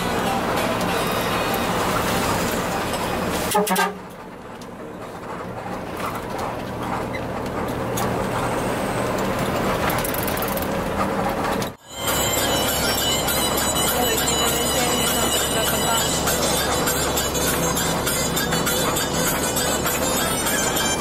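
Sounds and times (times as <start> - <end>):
bus horn blast: 0.0 - 4.2, 11.8 - 21.0
bus engine accelerating: 0.0 - 21.0.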